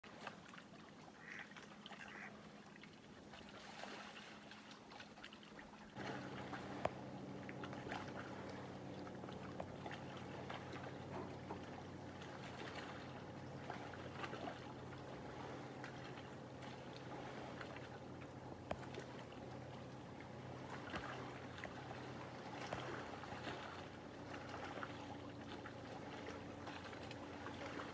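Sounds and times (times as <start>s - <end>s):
small splashes: 0.0s - 27.9s
water lapping at shore: 0.0s - 27.9s
low mechanical hum: 0.1s - 27.9s.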